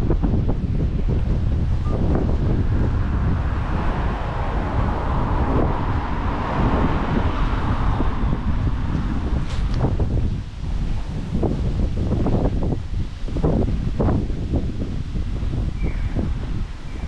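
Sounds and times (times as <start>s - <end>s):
wind rumbling on microphone: 0.0s - 17.0s
car passing: 1.4s - 11.6s.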